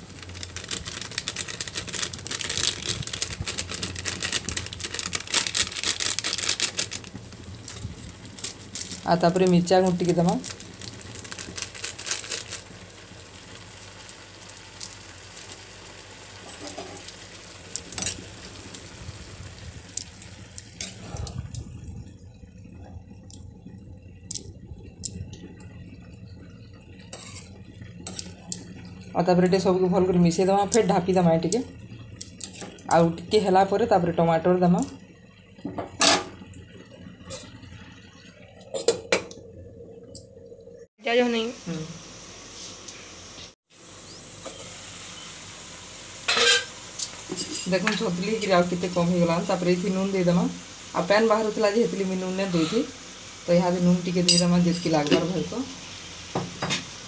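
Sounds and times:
vegetables sizzling in a pan: 0.0s - 39.2s, 41.0s - 57.0s
metal cookware clanking: 16.4s - 17.1s, 35.8s - 36.4s, 46.3s - 46.7s, 54.2s - 55.4s.

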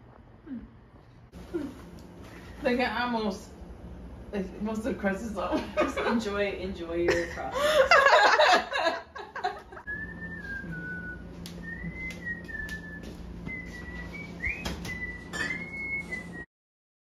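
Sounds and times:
low steady hum: 0.0s - 16.5s
person whistling a slow tune: 9.9s - 16.5s.

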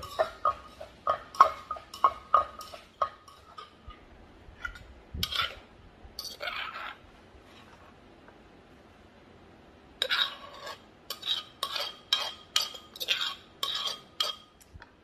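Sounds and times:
metal spoon scraping clay mortar: 0.0s - 4.0s, 4.6s - 7.0s, 10.0s - 14.6s.

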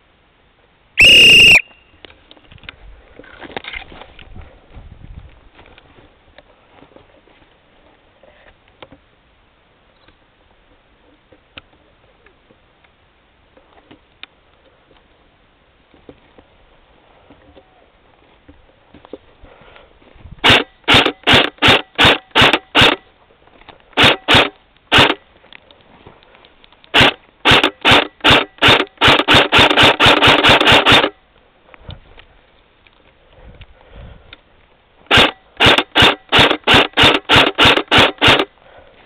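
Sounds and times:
airsoft rifle shots: 20.4s - 23.0s, 24.0s - 25.2s, 26.9s - 31.2s, 35.1s - 38.5s.

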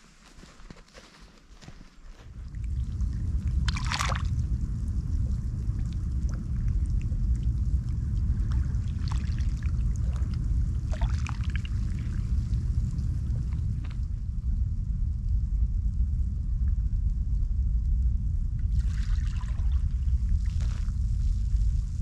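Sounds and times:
wind rumble on microphone: 0.0s - 22.0s
water lapping and trickling: 1.6s - 14.0s, 18.7s - 21.3s
water splashing: 3.6s - 4.4s, 8.5s - 10.3s, 10.9s - 12.2s.

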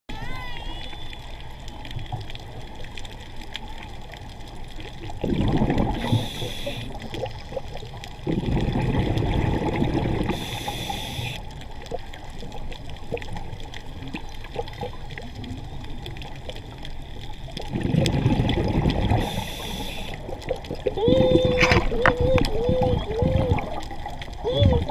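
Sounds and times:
faint crackling clicks: 0.9s - 24.9s
exhaled breaths bubbling underwater: 5.1s - 12.1s, 17.4s - 24.9s
inhaled breath hiss: 6.0s - 7.0s, 10.3s - 11.4s, 19.2s - 20.2s.

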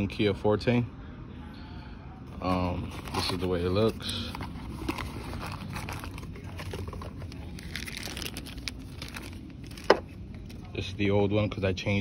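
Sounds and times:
crinkling and rustling: 2.4s - 10.7s.

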